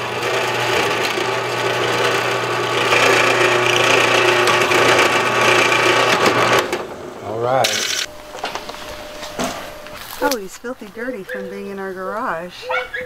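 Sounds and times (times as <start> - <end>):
drill bit boring through metal: 0.0 - 6.8, 7.6 - 8.1
drill press motor hum: 0.0 - 10.4.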